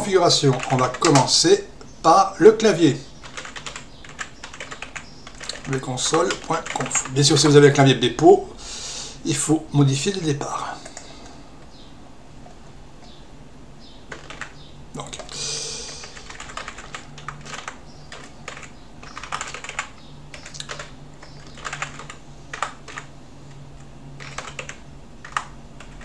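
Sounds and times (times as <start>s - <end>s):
computer keyboard typing: 0.0s - 1.4s, 3.2s - 7.5s, 10.8s - 11.2s, 14.1s - 26.0s
faint low hum: 0.0s - 26.0s.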